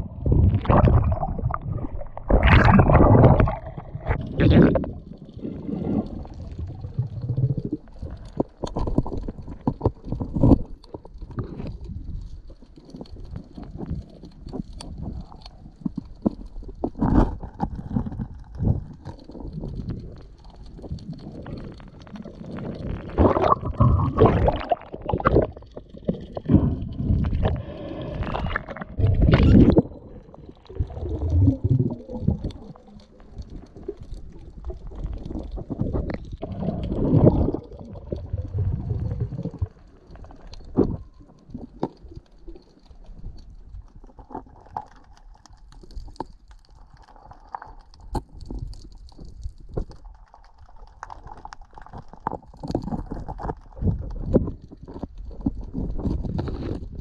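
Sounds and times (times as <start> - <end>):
muffled underwater gurgling: 0.0 - 42.5.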